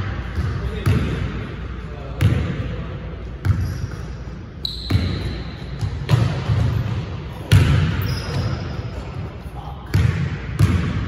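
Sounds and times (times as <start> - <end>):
high squeak: 8.0 - 8.7.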